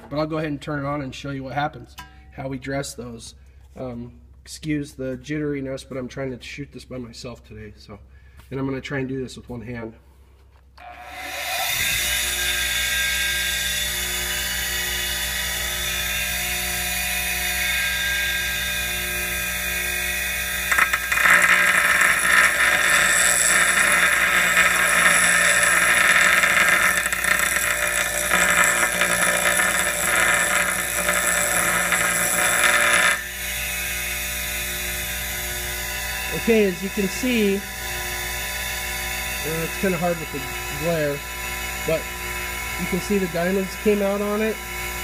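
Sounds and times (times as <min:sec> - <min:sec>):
bench grinder motor hum: 0:11.0 - 0:45.0
rough grinding hiss: 0:20.6 - 0:33.3.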